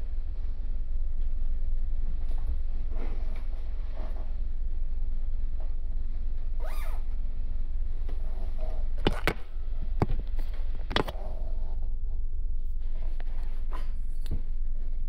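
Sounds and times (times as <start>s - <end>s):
faint steady hum: 0.0s - 15.0s
ship machinery rumble: 0.0s - 15.0s
sharp clicks and knocks: 9.0s - 11.2s.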